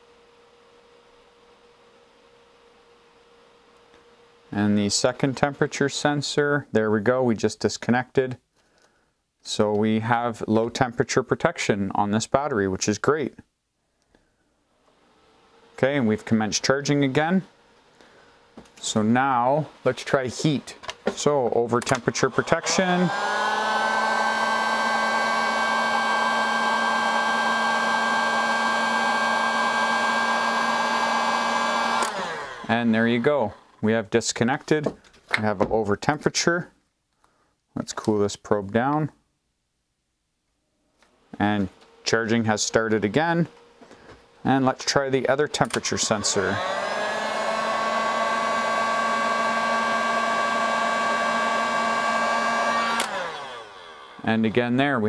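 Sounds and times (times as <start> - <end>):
heat gun fan humming: 14.0 - 34.2, 41.0 - 54.6.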